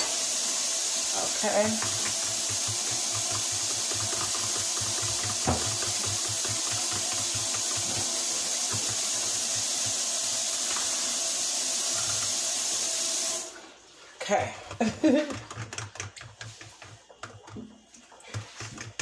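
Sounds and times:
faucet running into sink: 0.0 - 19.0
knock: 1.8 - 8.1.

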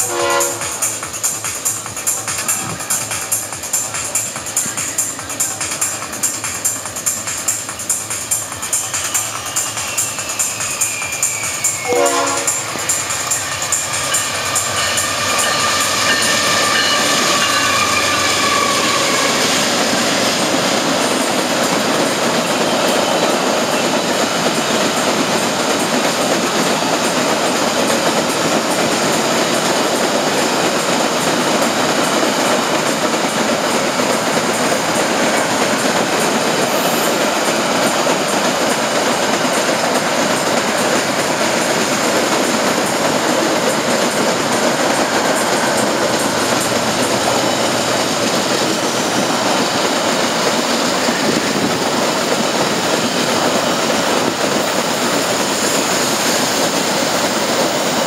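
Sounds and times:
locomotive horn: 0.0 - 0.8, 11.8 - 12.7, 14.2 - 19.5
train wheels clattering on rails: 0.0 - 58.0.

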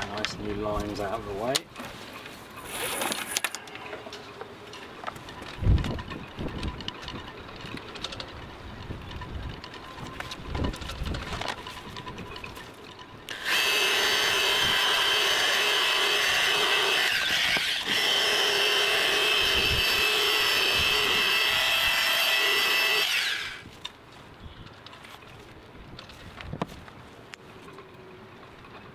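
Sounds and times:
electric polisher whining: 13.3 - 23.6.

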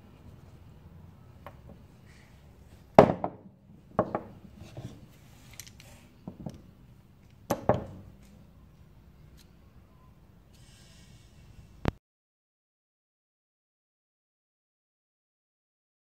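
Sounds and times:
knocks on wooden workbench: 3.0 - 4.4, 7.5 - 8.1.

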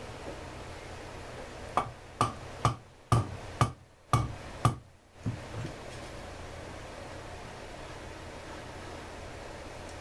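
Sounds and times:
low steady hum: 0.0 - 10.0
sharp ringing knocks: 1.8 - 4.9.

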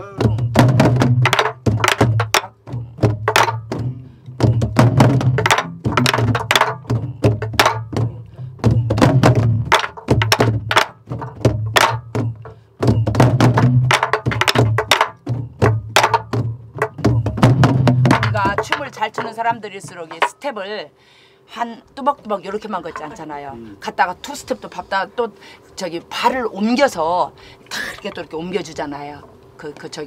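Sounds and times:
deep drum booms: 0.0 - 20.4.

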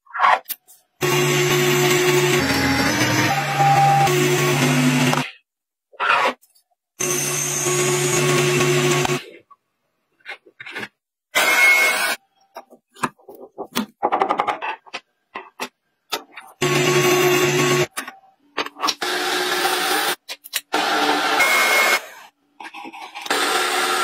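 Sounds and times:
metal lathe cutting: 1.0 - 5.2.

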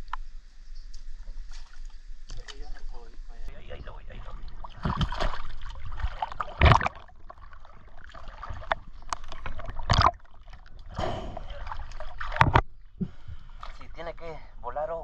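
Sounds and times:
river water splashing: 4.1 - 12.6.

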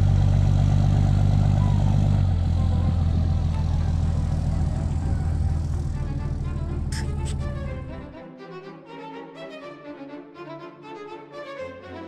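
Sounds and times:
vehicle motor drone: 0.0 - 8.2
music: 1.4 - 12.0.

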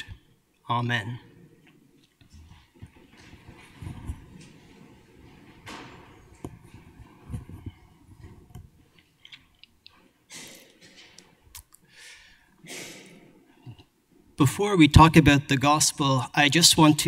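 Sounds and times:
microphone handling clicks and thumps: 2.2 - 9.4.

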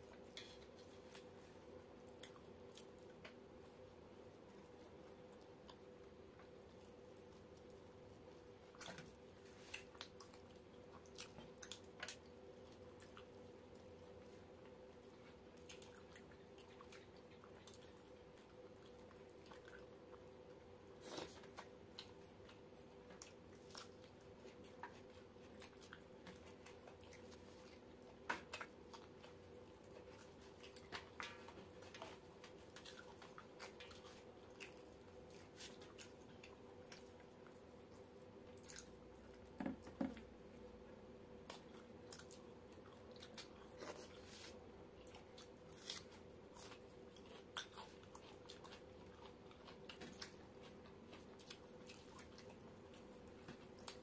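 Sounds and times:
faint steady hum: 0.0 - 54.0
soft chewing and squishing: 0.0 - 54.0
small clicks and smacks: 2.1 - 3.5.

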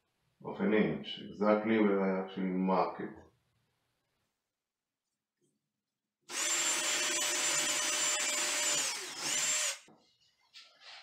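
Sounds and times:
cordless drill boring into wood: 6.3 - 9.9.

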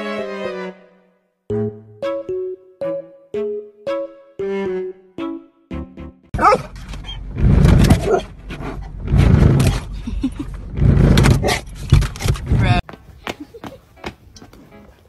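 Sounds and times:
melody: 1.5 - 6.3.

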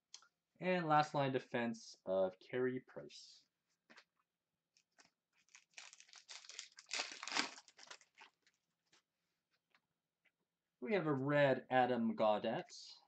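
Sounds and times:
card pack wrapper crinkling and tearing: 4.9 - 8.6.

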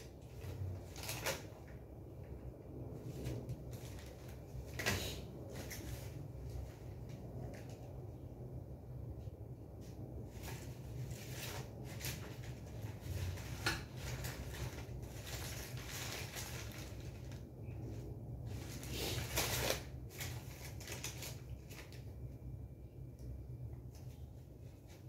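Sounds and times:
paper rustling: 0.0 - 1.8, 10.3 - 22.1.

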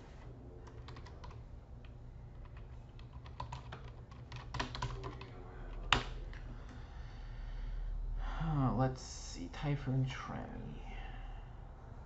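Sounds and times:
computer keyboard typing: 0.6 - 6.2.

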